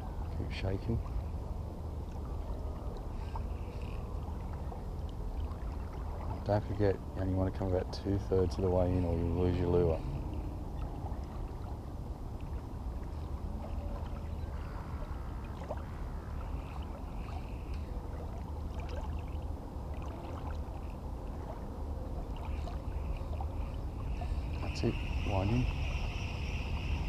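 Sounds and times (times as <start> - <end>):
small waves lapping: 0.0 - 27.0
wind noise on microphone: 23.8 - 27.0.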